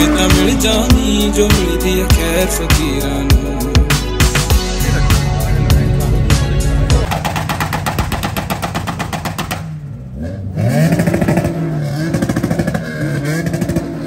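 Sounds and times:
engine revving: 0.0s - 14.0s
rapid sharp cracks: 7.1s - 9.8s.

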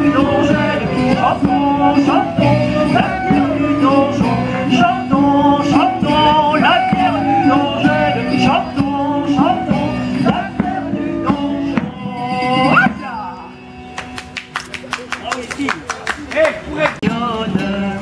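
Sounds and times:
man singing: 0.0s - 13.6s, 16.8s - 18.0s.

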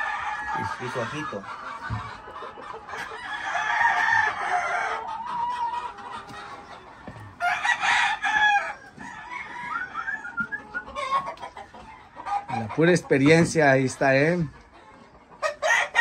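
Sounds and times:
rooster crowing: 3.2s - 5.1s, 7.4s - 10.6s.

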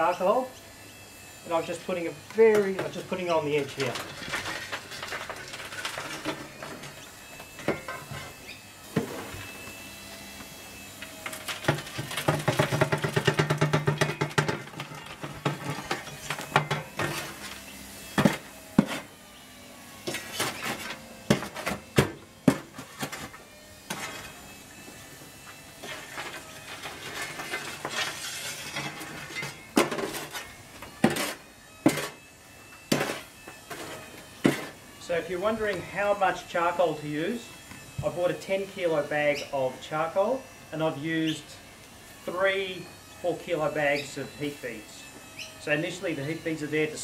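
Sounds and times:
shovel scraping coals: 1.6s - 9.7s, 11.0s - 19.1s, 20.0s - 24.4s, 25.8s - 32.2s, 32.9s - 36.3s
charcoal clattering against steel trough: 11.4s - 17.2s.

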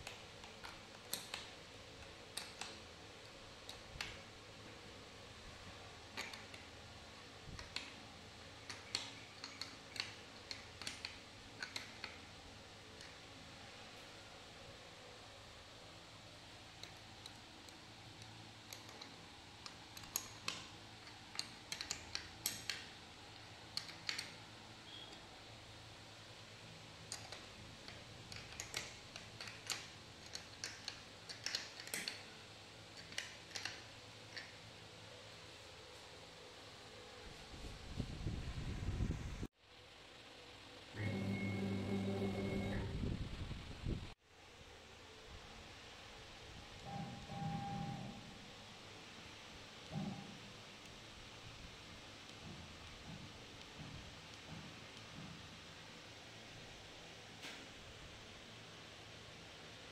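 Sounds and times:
spanner clicking on metal nut: 8.6s - 12.2s, 16.8s - 23.0s, 28.0s - 32.3s.

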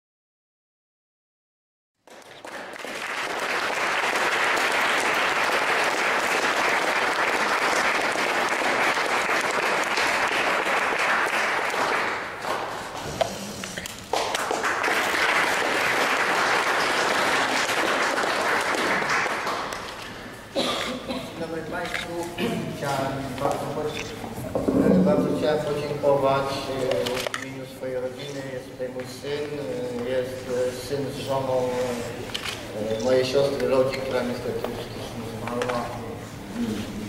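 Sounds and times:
audience applauding: 2.0s - 13.3s, 14.0s - 20.3s.

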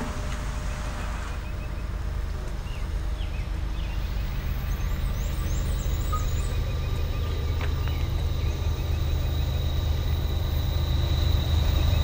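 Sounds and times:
freight train cars rolling past: 0.0s - 12.0s
bird chirping: 2.6s - 12.0s.

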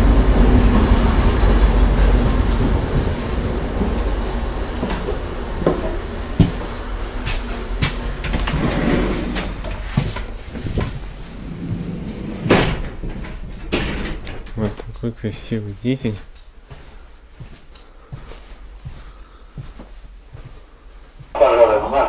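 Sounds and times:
diesel train engine rumble: 0.0s - 17.3s, 21.1s - 22.0s
footsteps: 4.8s - 8.8s, 9.4s - 13.4s, 15.7s - 22.0s
door knocks and clunks: 12.3s - 14.8s.

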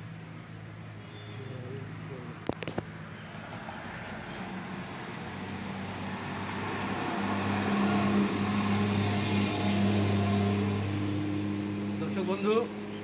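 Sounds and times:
road traffic noise: 0.0s - 13.0s
vehicle engine humming: 0.0s - 13.0s.

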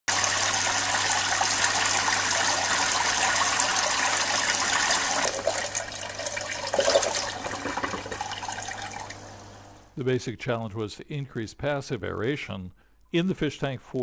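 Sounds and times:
water streams splashing into tank: 0.1s - 9.5s.

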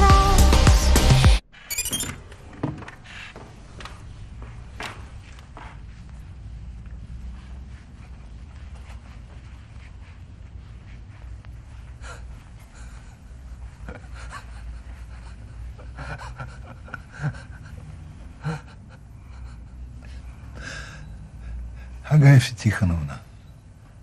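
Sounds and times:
person breathing quietly: 6.0s - 22.1s.

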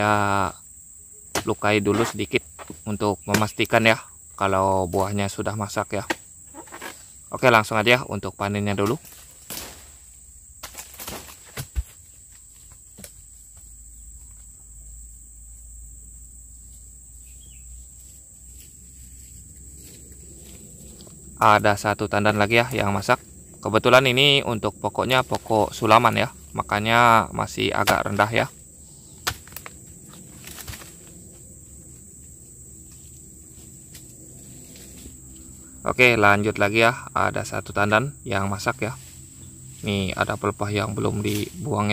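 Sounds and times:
high-pitched insect tone: 0.0s - 41.9s
chisel striking palm stalk: 1.3s - 3.7s, 6.0s - 7.0s, 8.8s - 9.9s, 10.6s - 12.0s, 29.2s - 29.8s
knocks and rustling: 10.6s - 14.6s
chisel chopping into stalk: 29.2s - 29.7s.

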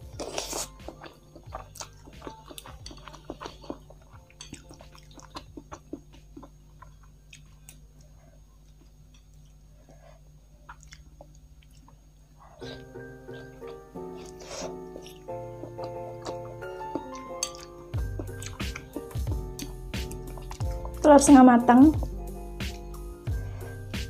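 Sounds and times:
wet chewing clicks and smacks: 0.2s - 7.8s, 10.6s - 12.0s, 19.6s - 21.0s.

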